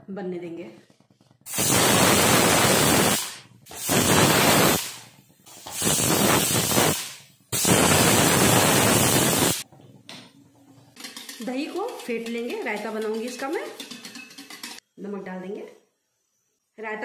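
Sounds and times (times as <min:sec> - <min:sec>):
pressure cooker whistling: 0:07.6 - 0:09.6.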